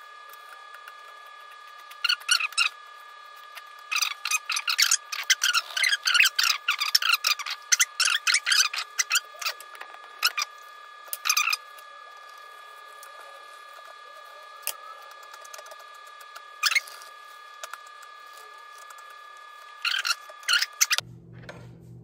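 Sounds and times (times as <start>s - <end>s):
faint steady hum: 0.0s - 22.0s.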